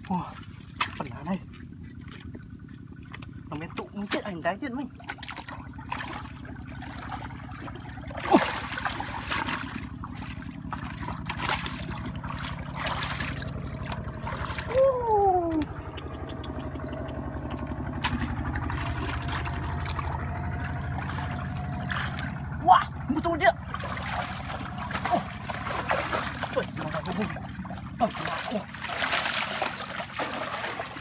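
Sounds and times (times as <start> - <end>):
hands splashing in muddy water: 0.0 - 31.0
steady low hum: 0.0 - 31.0.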